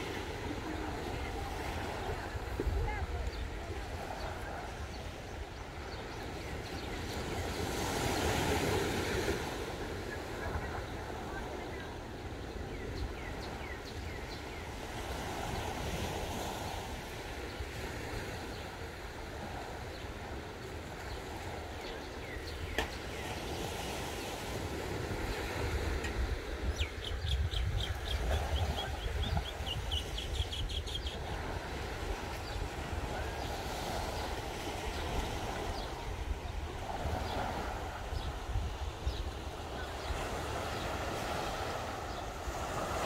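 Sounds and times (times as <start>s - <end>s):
gentle surf on rocks: 0.0s - 43.0s
wind buffeting microphone: 24.6s - 43.0s.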